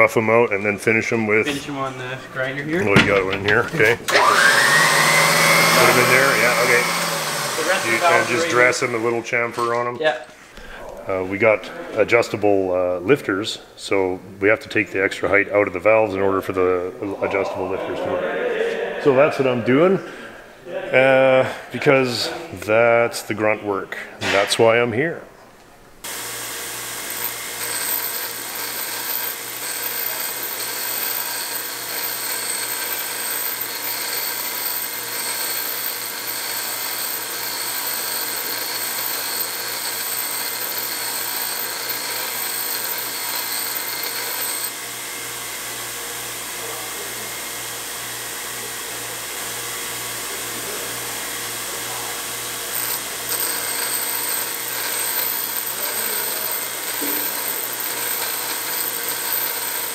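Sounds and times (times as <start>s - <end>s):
stone grinding steel: 2.8s - 8.6s, 26.8s - 44.7s, 52.7s - 59.9s
bench grinder motor hum: 4.0s - 9.2s, 26.0s - 45.7s, 52.4s - 59.9s.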